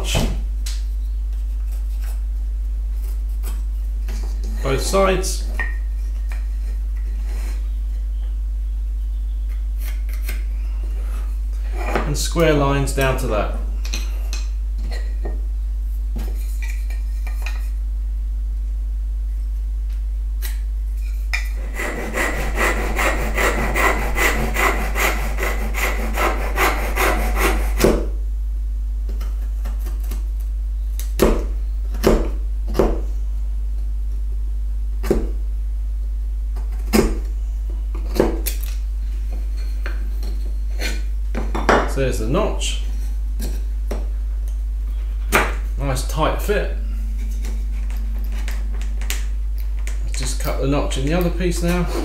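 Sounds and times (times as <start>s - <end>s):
low electrical hum: 0.0s - 52.0s
hand saw cutting wood: 21.6s - 28.0s, 51.6s - 52.0s.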